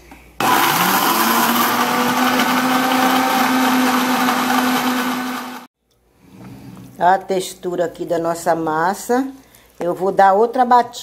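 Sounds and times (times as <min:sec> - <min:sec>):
blender running: 0:00.4 - 0:05.7.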